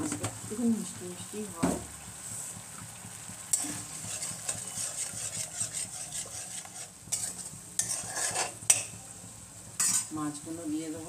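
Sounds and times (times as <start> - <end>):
gravy sizzling: 0.0 - 11.0
metal spoon scraping a pan: 3.5 - 8.9, 9.8 - 10.2.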